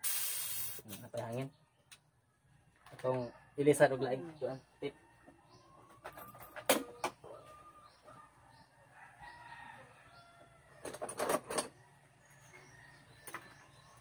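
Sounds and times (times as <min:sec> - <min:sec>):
rooster crowing: 0:04.8 - 0:10.9
chickens clucking: 0:05.3 - 0:08.7.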